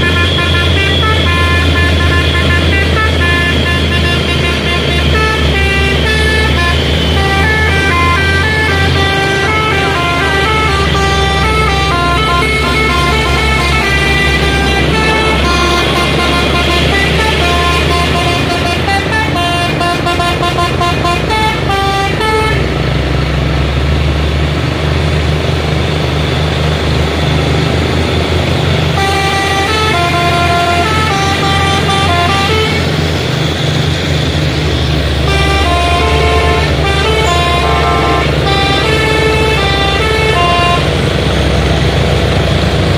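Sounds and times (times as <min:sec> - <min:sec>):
multi-tone vehicle horn melody: 0:00.0 - 0:23.0, 0:27.8 - 0:42.3
heavy trucks rumbling: 0:00.0 - 0:42.9.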